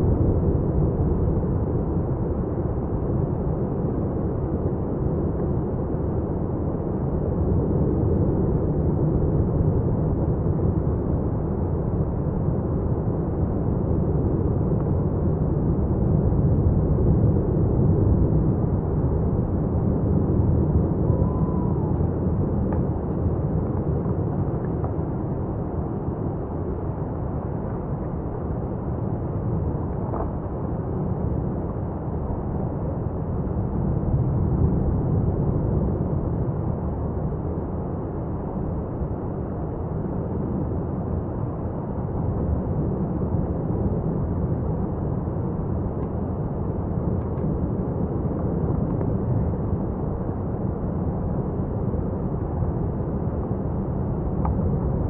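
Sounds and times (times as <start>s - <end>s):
lava fountain erupting roar: 18.6s - 25.2s.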